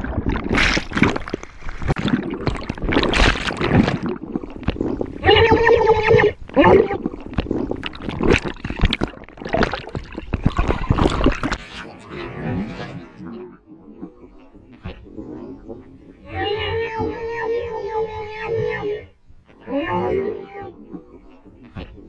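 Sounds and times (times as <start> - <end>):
underwater rush and bubbling: 0.0 - 13.2.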